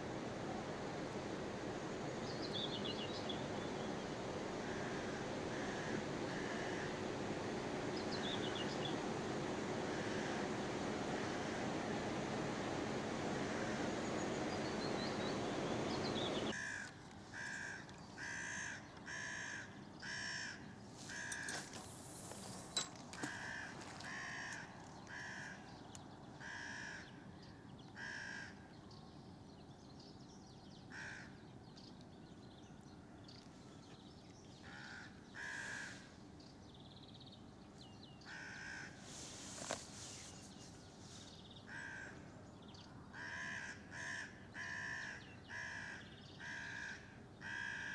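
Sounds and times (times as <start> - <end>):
crow cawing: 4.7 - 6.9, 16.6 - 21.5, 23.2 - 25.7, 26.4 - 27.0, 28.0 - 28.6, 30.9 - 31.4, 34.6 - 36.1, 38.3 - 39.0, 41.7 - 42.2, 43.1 - 47.9.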